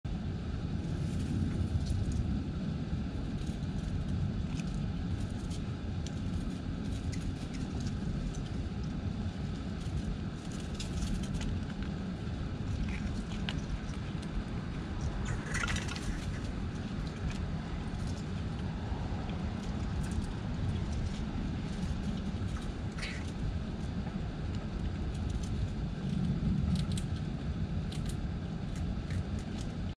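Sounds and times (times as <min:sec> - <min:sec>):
low outdoor rumble: 0:00.0 - 0:30.0.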